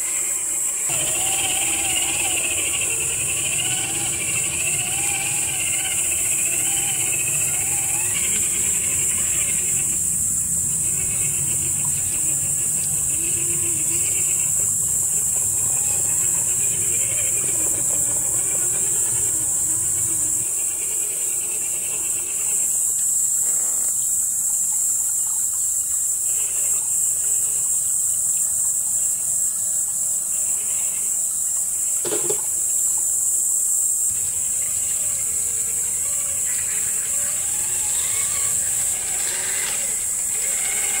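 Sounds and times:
high insect drone: 0.0 - 41.0
electric motor and gearbox whining: 0.1 - 22.3, 34.1 - 41.0.

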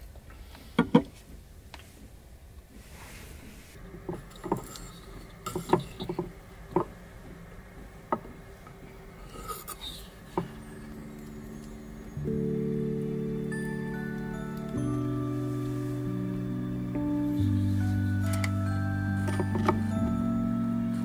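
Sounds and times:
soft background music: 10.0 - 21.0.

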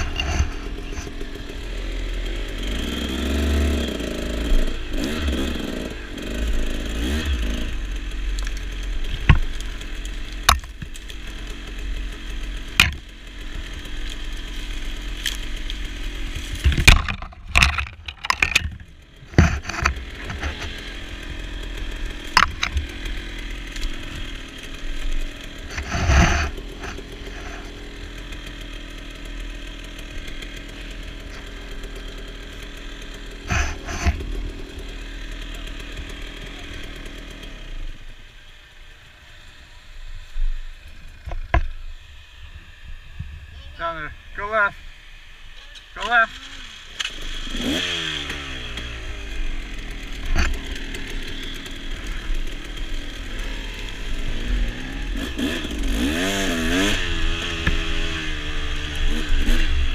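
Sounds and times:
dirt bike engine running: 0.0 - 59.9
sharp knocks and clatters: 10.4 - 11.2, 12.7 - 13.1, 16.3 - 20.8, 22.2 - 23.0.

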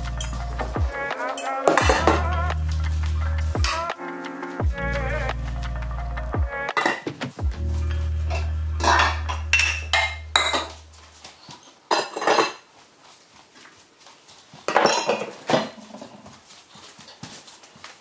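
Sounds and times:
dishes and glasses clinking: 6.7 - 7.2, 8.3 - 10.8, 11.9 - 12.7, 14.7 - 16.2.

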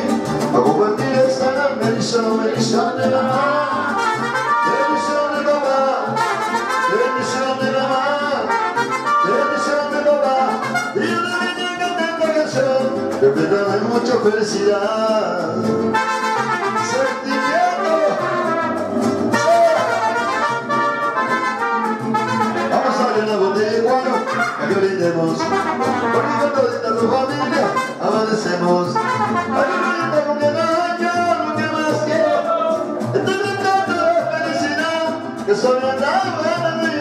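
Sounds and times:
mariachi band playing: 0.0 - 37.0
trumpets playing melody: 3.4 - 11.5, 15.9 - 30.9.

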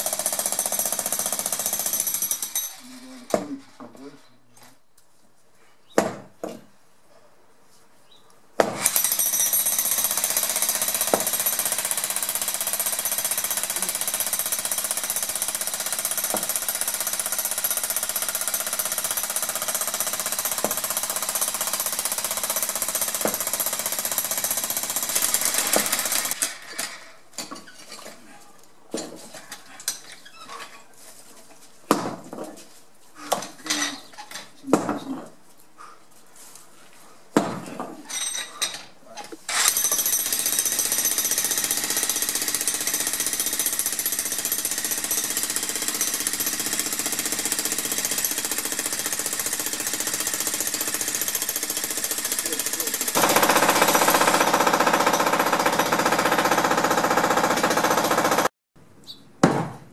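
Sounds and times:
jackhammer breaking stone: 0.0 - 3.5, 8.6 - 27.1, 39.5 - 58.5.

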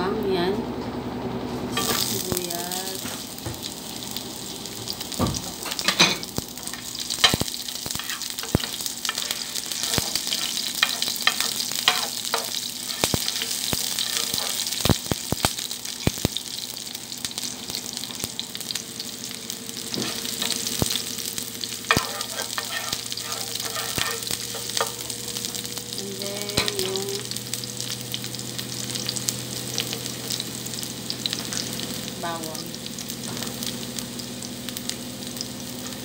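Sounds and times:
onion sizzling in a frying pan: 1.5 - 36.0
sharp oil crackles: 6.6 - 18.8.

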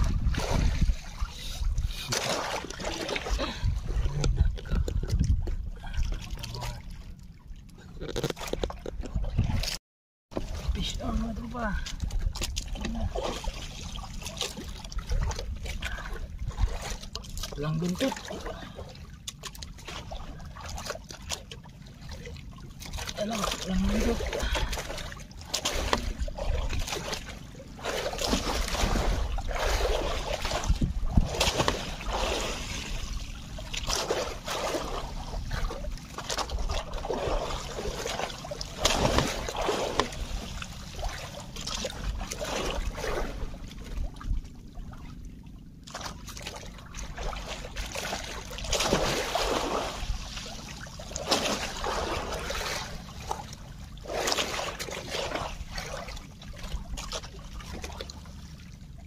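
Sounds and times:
low rumble: 0.0 - 9.8
water splashing against boat: 0.0 - 59.0.

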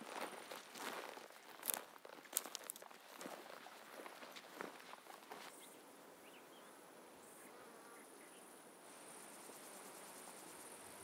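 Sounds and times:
insect chirring: 8.9 - 11.0.

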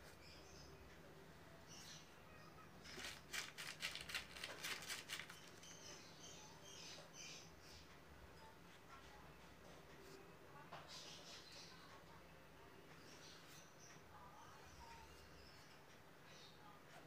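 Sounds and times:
rapid clicks and rustles from handling: 2.9 - 5.7.

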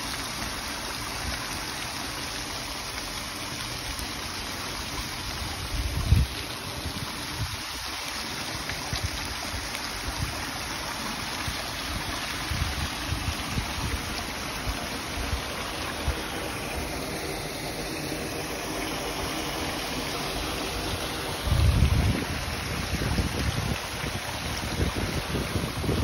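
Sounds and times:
fountain water splashing over stone: 0.0 - 26.0
wind buffeting microphone: 5.6 - 7.8, 21.3 - 26.0.

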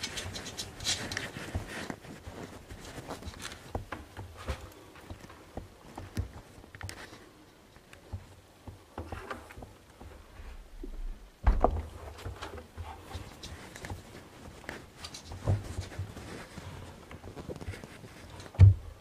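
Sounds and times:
cloth rustling: 0.0 - 18.6
heavy thump: 10.8 - 12.0.

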